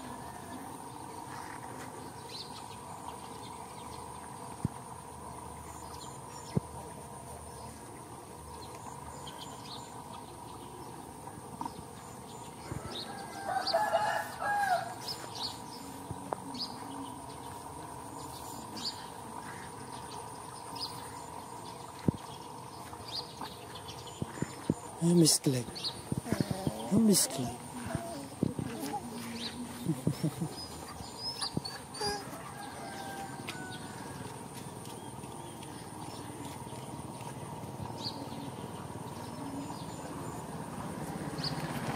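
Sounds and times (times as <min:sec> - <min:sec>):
rooster crowing: 0:12.7 - 0:15.0, 0:32.0 - 0:34.4.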